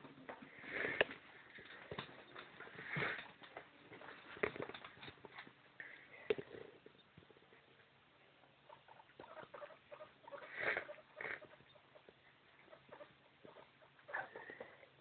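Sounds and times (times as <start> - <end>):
animal pattering and scuffling: 0.0 - 5.8.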